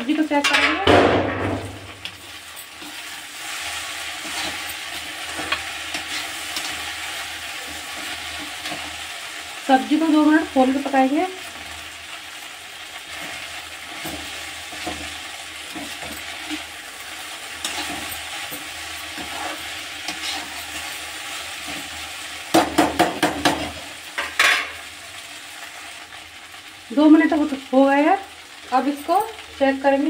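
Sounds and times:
okra sizzling in oil: 0.0s - 30.0s
metal ladle scraping pan: 19.1s - 20.9s.

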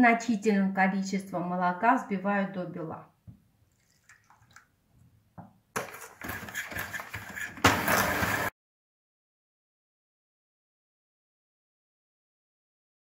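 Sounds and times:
electric hand mixer whirring: 5.8s - 8.5s.

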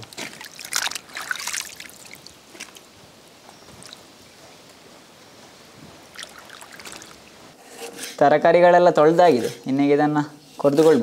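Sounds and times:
water splashing and dripping: 0.0s - 3.0s, 3.7s - 4.2s, 6.0s - 7.6s.

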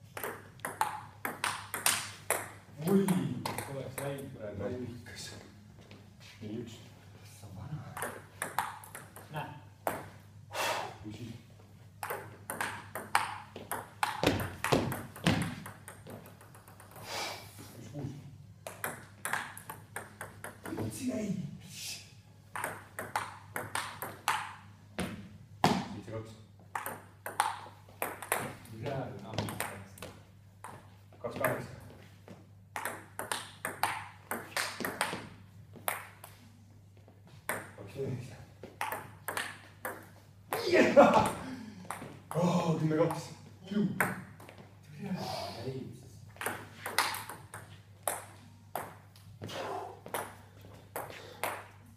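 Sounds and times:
table tennis ball clicking: 12.0s - 17.0s, 26.8s - 28.5s, 46.4s - 49.2s.

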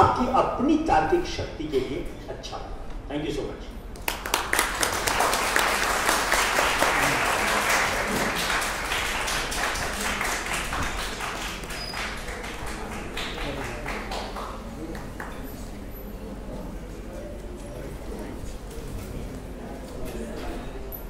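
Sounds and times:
audience applauding: 4.0s - 15.5s.

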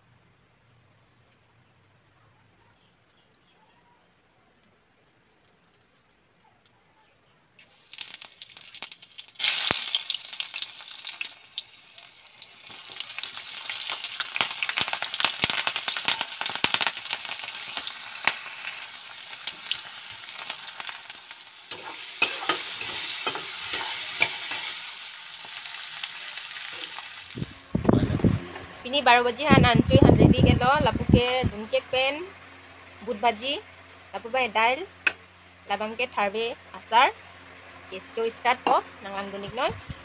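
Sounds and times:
hot oil sizzling in a wok: 7.6s - 27.6s
metal ladle scraping a pan: 21.7s - 25.0s.

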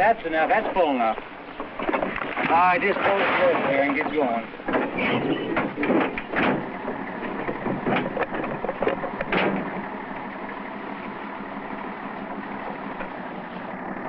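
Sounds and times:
motor idling: 0.0s - 14.0s
short clatters: 0.6s - 10.3s.

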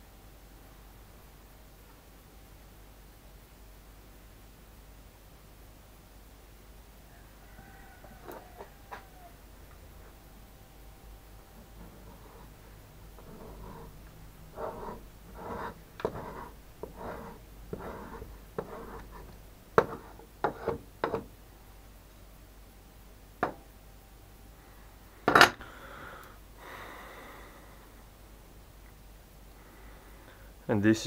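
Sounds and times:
metal scraper scraping wax: 11.8s - 21.3s.

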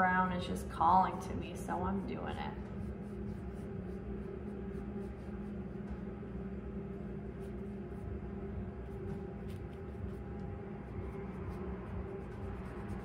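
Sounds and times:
room hum with low rumble: 0.0s - 13.0s
paintbrush dabbing on canvas: 1.7s - 6.0s, 8.8s - 13.0s.

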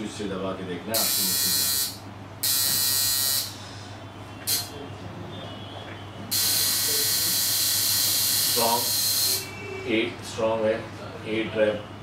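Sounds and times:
tattoo machine buzzing: 1.0s - 3.6s, 4.5s - 4.7s, 6.3s - 9.6s.

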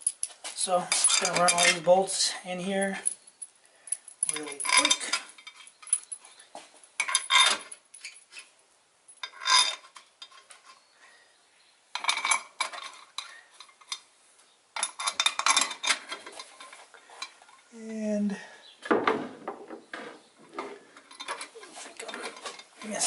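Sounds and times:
steel bolts clinking in a hand: 2.8s - 6.3s, 7.0s - 8.5s, 14.8s - 17.3s.

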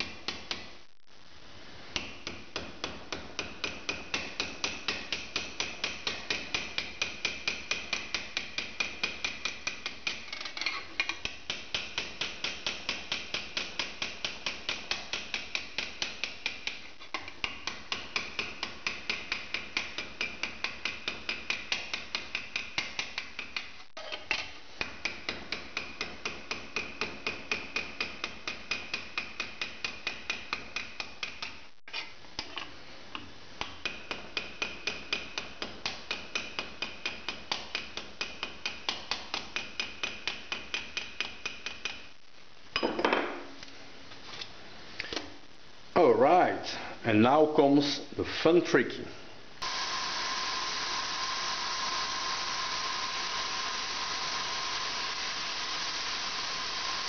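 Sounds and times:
hammer tapping on metal: 2.0s - 10.2s.

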